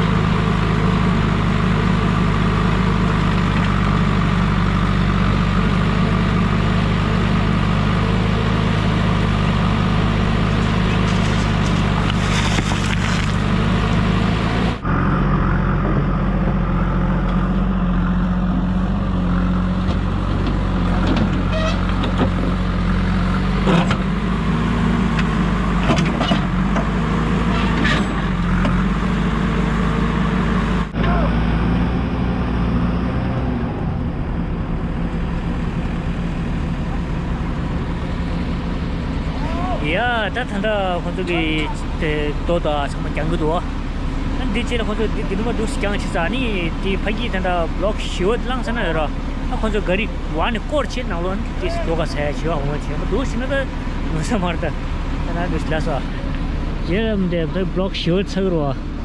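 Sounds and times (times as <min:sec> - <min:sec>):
diesel engine running: 0:00.0 - 0:59.0
bucket and rocks clattering: 0:10.9 - 0:13.4.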